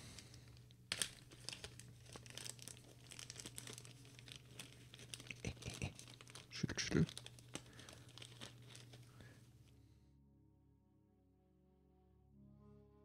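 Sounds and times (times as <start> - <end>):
plastic bag crinkling: 0.0 - 9.5.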